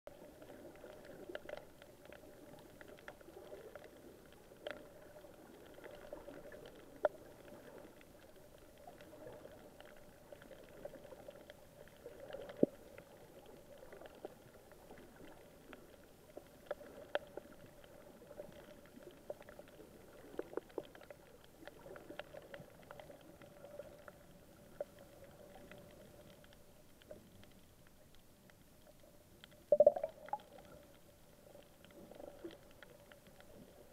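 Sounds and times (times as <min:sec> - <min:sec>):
faint underwater hum: 0:00.1 - 0:33.9
underwater clicks and knocks: 0:29.7 - 0:30.7.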